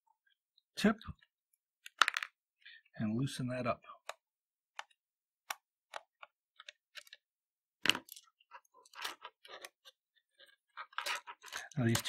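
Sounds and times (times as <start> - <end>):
plastic casing handled: 4.0 - 12.0.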